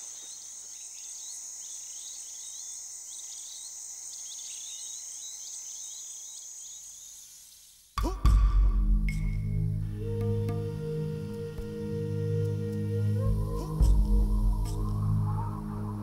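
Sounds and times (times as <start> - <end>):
insect trill and chirps: 0.0 - 8.0.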